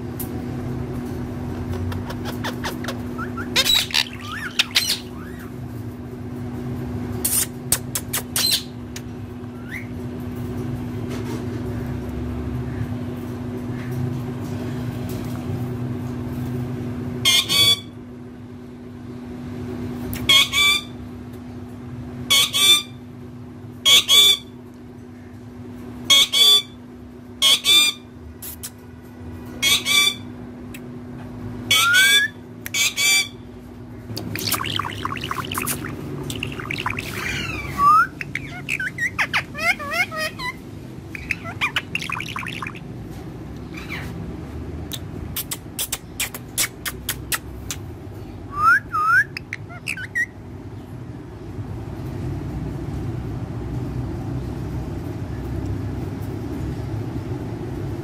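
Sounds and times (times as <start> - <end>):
steady low hum: 0.0 - 58.0
parrot squawking: 1.6 - 5.5, 8.2 - 8.8, 17.2 - 17.9, 20.2 - 21.0, 22.3 - 23.0, 23.8 - 24.5, 26.1 - 26.8, 27.4 - 28.1, 29.6 - 30.3, 31.7 - 33.4, 34.2 - 42.9, 43.7 - 44.2, 48.5 - 50.4.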